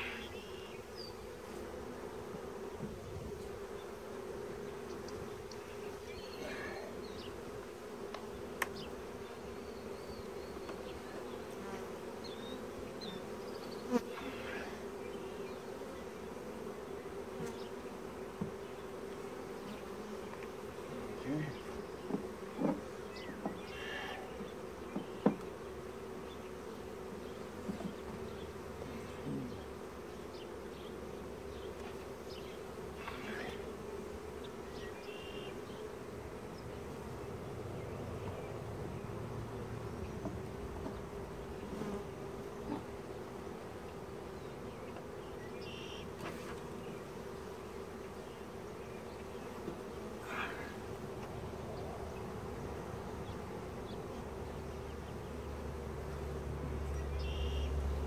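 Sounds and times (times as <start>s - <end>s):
honeybees buzzing: 0.0s - 58.0s
hive tool knocking on wood: 18.4s - 18.6s, 22.0s - 22.8s, 24.4s - 25.5s.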